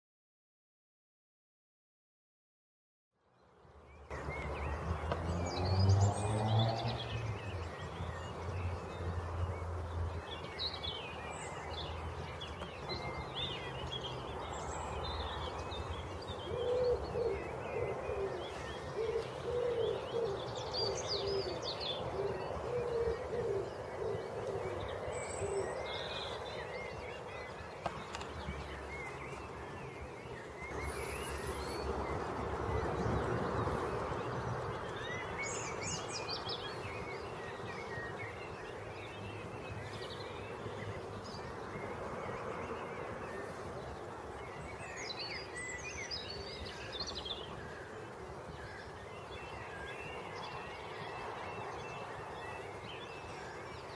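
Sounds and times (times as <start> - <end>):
birds singing: 3.3 - 53.9
pigeon cooing: 16.5 - 24.8.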